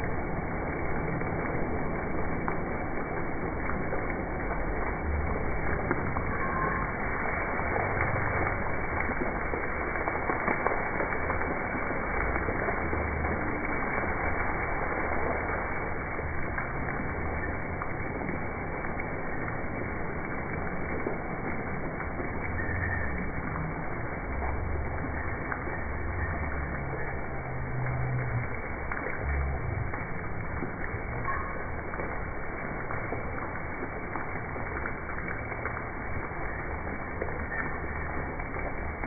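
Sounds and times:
elephant spraying water: 0:00.0 - 0:39.0
fountain water splashing: 0:00.0 - 0:39.0.

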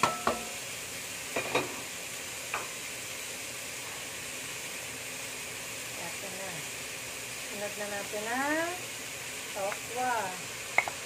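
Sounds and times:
wooden spatula knocking pan: 0:00.0 - 0:00.5
vegetables sizzling in a wok: 0:00.0 - 0:11.0.

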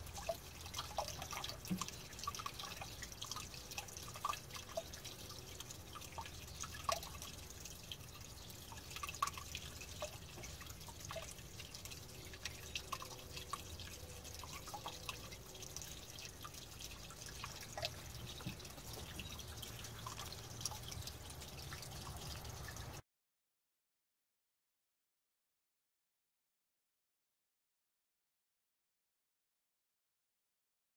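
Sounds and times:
water dripping: 0:00.0 - 0:23.0.

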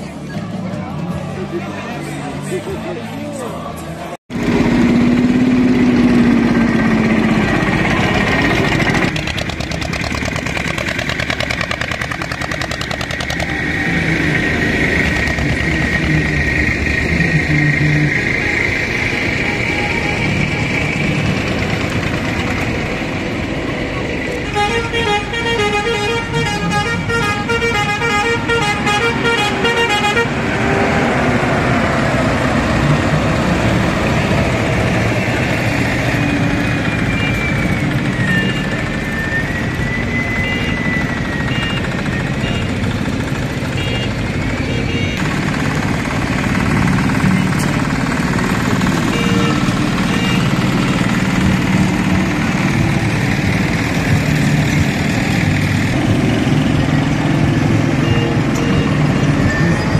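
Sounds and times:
tractor engines driving past: 0:00.0 - 0:59.9
horn tooting rapidly: 0:24.2 - 0:30.6, 0:34.0 - 0:54.4, 0:57.4 - 0:59.9.

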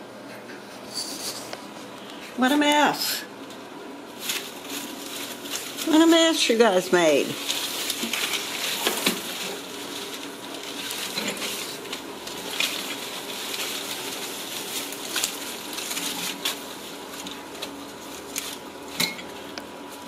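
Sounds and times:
plastic leaves rustling and crinkling: 0:04.1 - 0:20.0.

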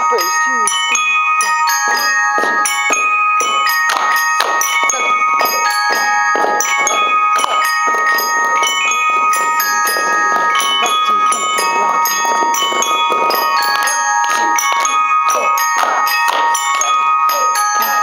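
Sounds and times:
glockenspiel melody: 0:00.0 - 0:18.0.

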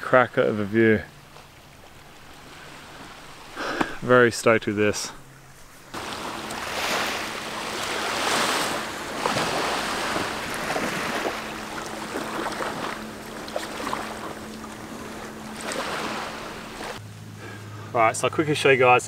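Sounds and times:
faint steady hum: 0:00.0 - 0:19.0
small waves lapping on sand: 0:01.1 - 0:04.6, 0:05.4 - 0:17.0
bare feet splashing in water: 0:05.5 - 0:17.0.

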